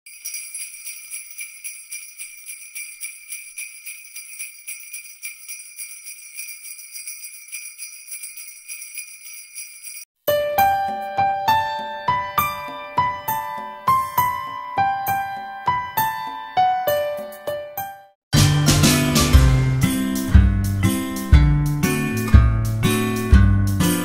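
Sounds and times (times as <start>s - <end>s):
sleigh bells jingling: 0.1s - 10.1s.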